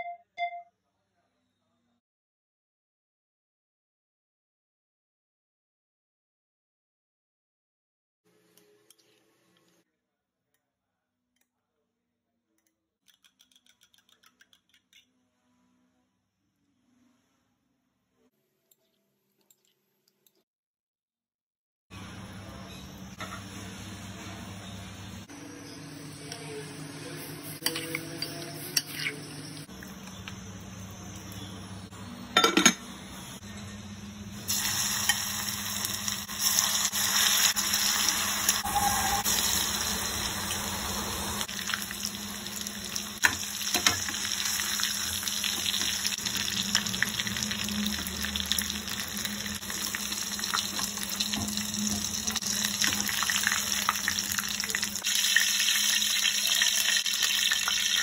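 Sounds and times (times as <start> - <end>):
chicken sizzling in hot oil: 34.4 - 58.0.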